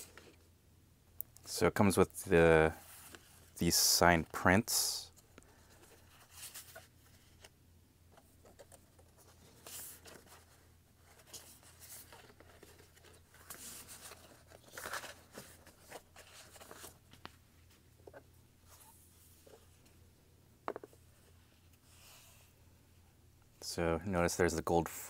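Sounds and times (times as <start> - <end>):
stiff paper rustling: 8.4 - 17.3.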